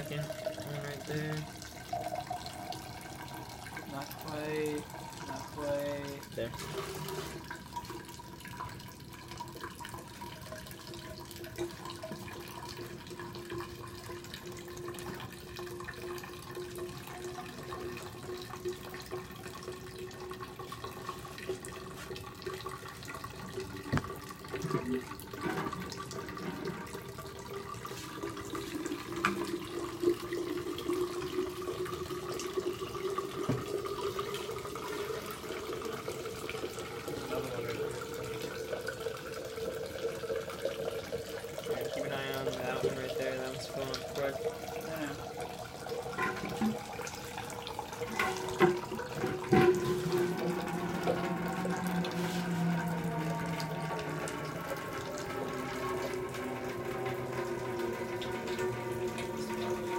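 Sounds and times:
water running from hose: 3.9s - 7.6s, 23.7s - 40.3s, 41.1s - 59.9s.

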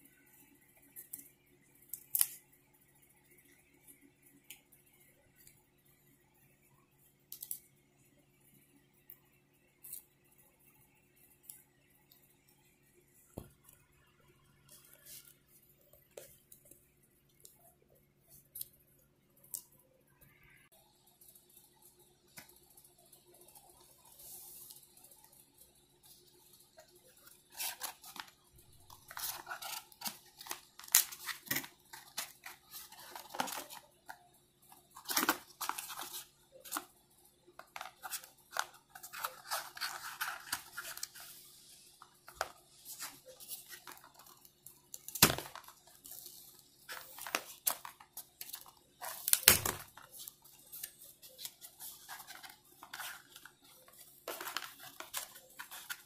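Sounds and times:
packaging clicks and rustles: 26.7s - 36.9s, 37.6s - 56.0s.

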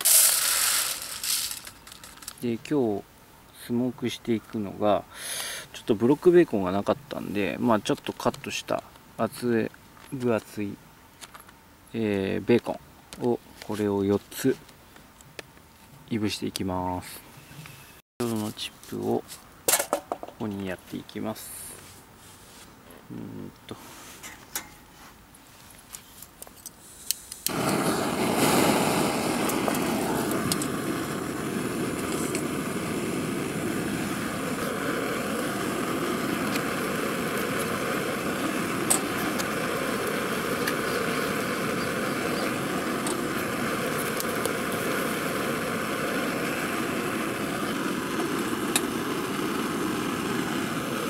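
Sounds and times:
gas flame rushing: 0.0s - 2.5s, 27.0s - 51.0s.

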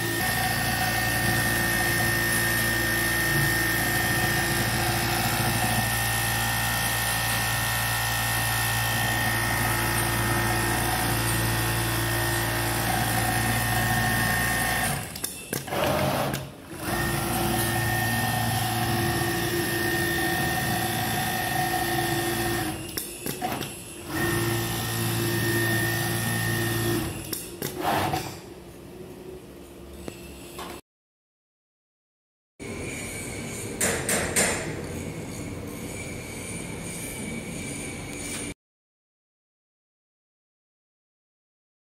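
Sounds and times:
sewing machine humming: 0.0s - 22.8s, 23.4s - 28.2s.

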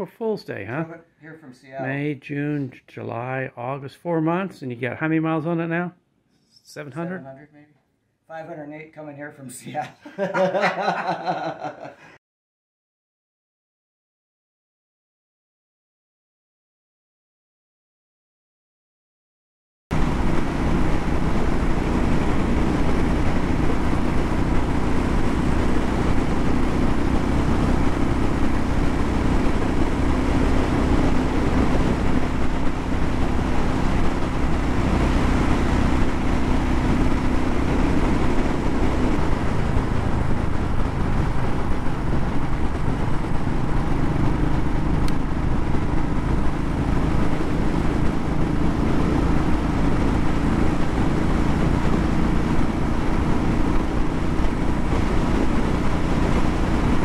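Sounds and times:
motorcycle engine cruising: 19.9s - 57.0s
wind rush: 19.9s - 57.0s.

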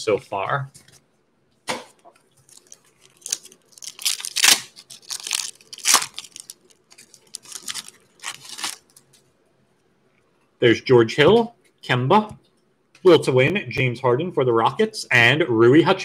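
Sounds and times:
foil wrapper ripping and crinkling: 2.4s - 9.0s.

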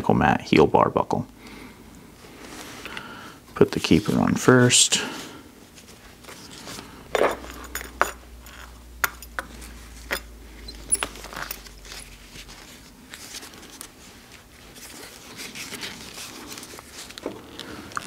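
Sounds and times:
belt buckle clicks and clinks: 10.1s - 12.1s.

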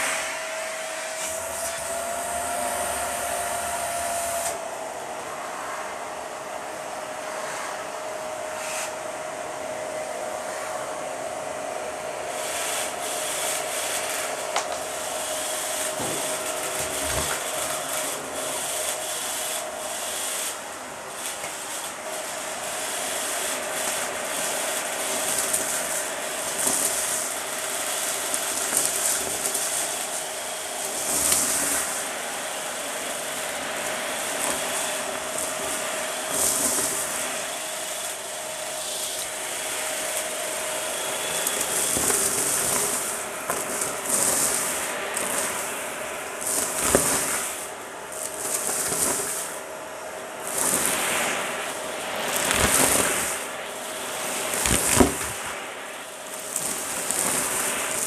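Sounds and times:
vacuum cleaner motor whine: 0.0s - 58.0s
debris rattling through hose: 23.2s - 38.3s, 40.0s - 49.7s, 50.3s - 55.6s.

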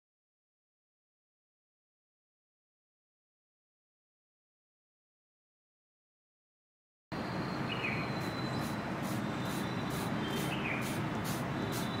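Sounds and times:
steady background noise: 7.1s - 12.0s
short bird chirp: 7.2s - 12.0s.

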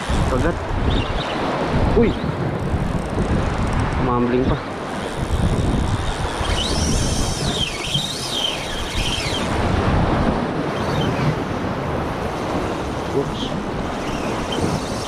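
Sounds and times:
surf washing over rocks: 0.0s - 15.0s
wind buffeting microphone: 0.0s - 15.0s
thin high whine: 5.1s - 9.6s.

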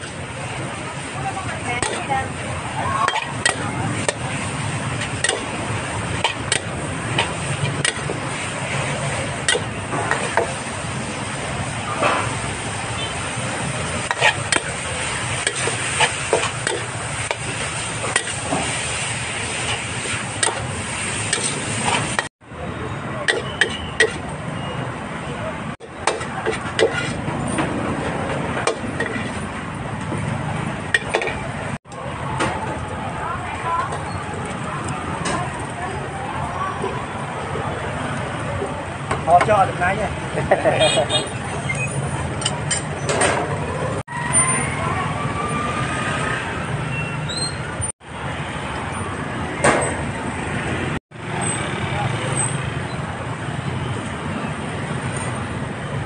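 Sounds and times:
rumble of traffic and people: 0.0s - 56.0s
steady background noise: 0.0s - 56.0s
utensils tapping against a pan: 5.1s - 5.5s.

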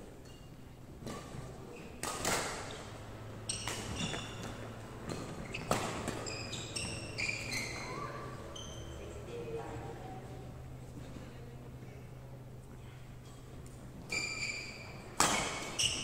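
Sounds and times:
racket hitting shuttlecock: 1.0s - 7.8s, 15.1s - 16.0s
shoes squeaking on wooden floor: 3.4s - 9.0s.

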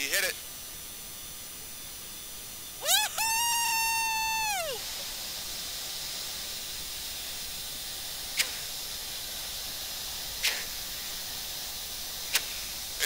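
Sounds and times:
cockpit hiss: 0.0s - 13.0s
sharp click: 8.4s - 8.6s, 10.4s - 10.7s.

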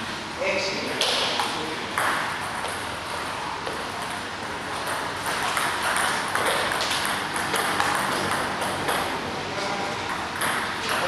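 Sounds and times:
steady background noise: 0.0s - 11.0s
table tennis ball clicking: 4.8s - 9.1s.

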